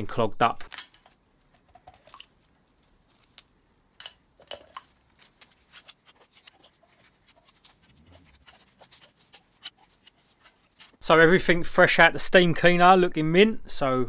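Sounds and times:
metal parts clicking and tapping: 0.7s - 2.1s, 3.3s - 5.3s.

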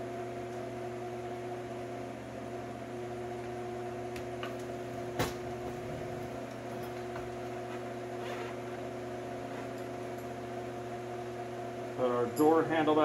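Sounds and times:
steady hum: 0.0s - 13.0s.

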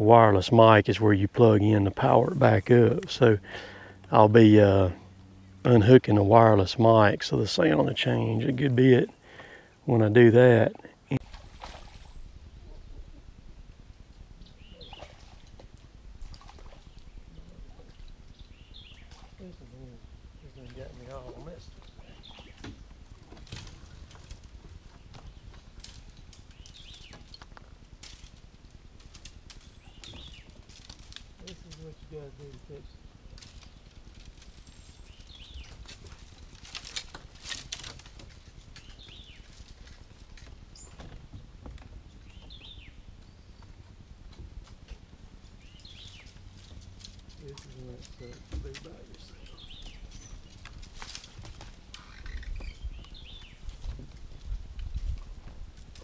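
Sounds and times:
low wind rumble: 0.0s - 56.0s
faint clicks and rustles: 11.2s - 56.0s
bird chirps: 14.4s - 15.3s, 45.4s - 46.8s, 49.2s - 50.6s, 52.0s - 53.7s.

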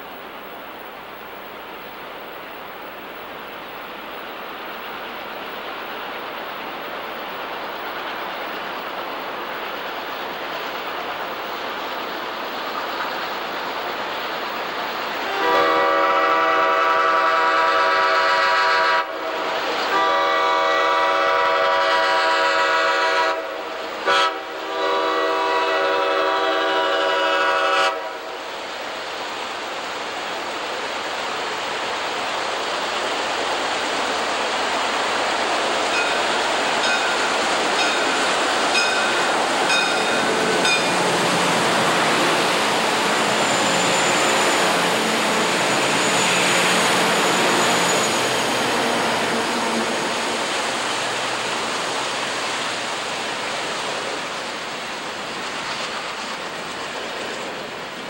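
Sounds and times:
train rumbling: 0.0s - 58.0s
locomotive air horn chord: 15.3s - 28.4s, 39.7s - 50.2s.

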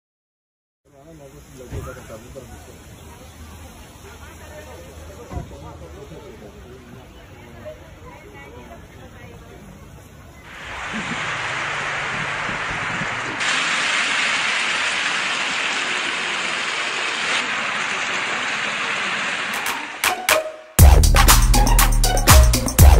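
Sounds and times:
traffic on wet street: 1.0s - 20.2s
sharp electronic beats: 19.5s - 22.9s.

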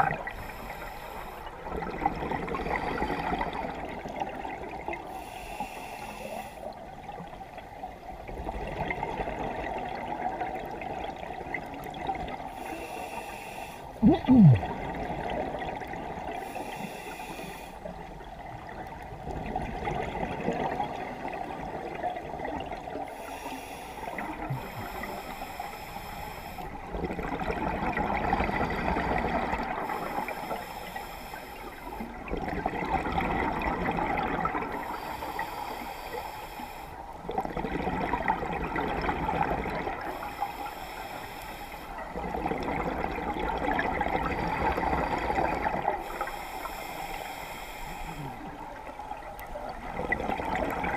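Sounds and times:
regulator inhale hiss: 0.4s - 1.6s, 5.1s - 6.8s, 12.6s - 14.0s, 16.4s - 17.9s, 23.1s - 26.8s, 29.8s - 32.1s, 34.8s - 37.1s, 40.1s - 42.1s, 44.5s - 48.9s
bubbling regulator exhaust underwater: 14.0s - 16.3s.

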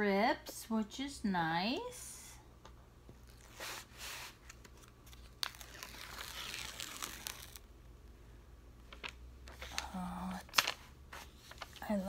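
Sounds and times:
paper crinkling and rustling: 3.2s - 7.6s, 8.9s - 12.0s.

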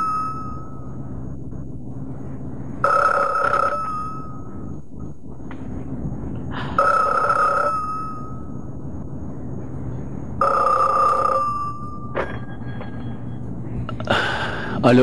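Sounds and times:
desk telephone ringing: 0.0s - 0.8s, 2.8s - 4.5s, 6.8s - 8.5s, 10.4s - 12.6s
low steady hum: 0.0s - 15.0s.

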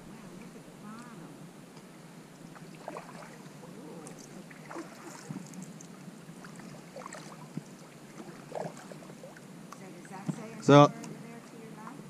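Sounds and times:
paddle splashes and drips: 2.3s - 12.0s.

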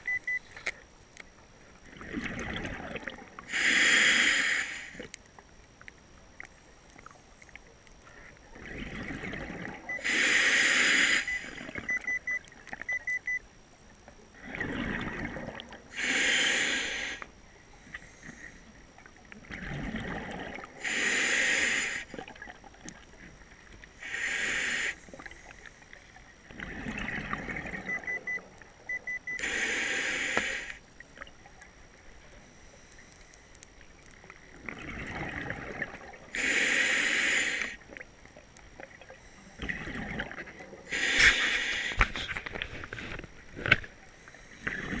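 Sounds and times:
gurgling exhaled bubbles: 1.9s - 3.5s, 8.6s - 10.0s, 14.4s - 16.0s, 19.4s - 20.9s, 26.4s - 28.2s, 34.5s - 36.5s, 38.8s - 41.2s, 44.6s - 45.0s
hissing regulator inhale: 3.5s - 5.1s, 9.9s - 11.6s, 15.9s - 18.7s, 20.8s - 22.2s, 24.0s - 25.8s, 29.3s - 30.8s, 36.3s - 37.8s, 40.9s - 43.0s.

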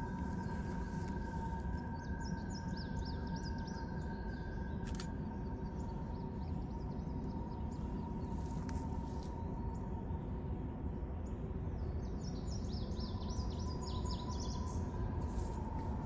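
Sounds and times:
freight train rumble: 0.0s - 4.1s
high whine: 0.0s - 11.8s.

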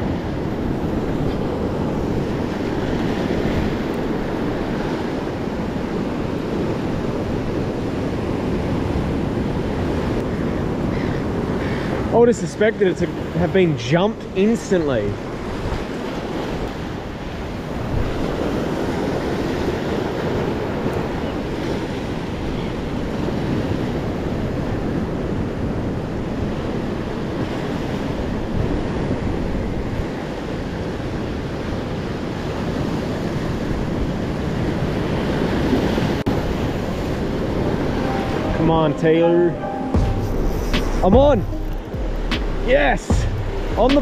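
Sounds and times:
surf washing up shore: 0.0s - 44.0s
wind buffeting microphone: 15.1s - 38.1s.

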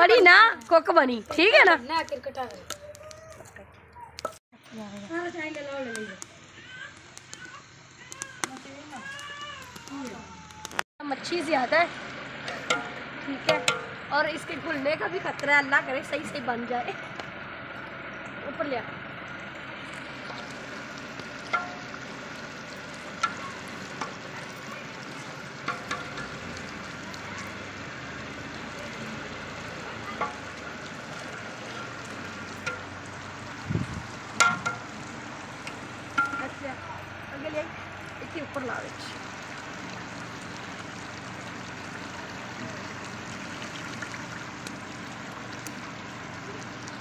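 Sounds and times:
fish sizzling in metal pot: 4.2s - 17.0s, 19.1s - 47.0s
metal ladle scraping pot: 25.0s - 26.8s.

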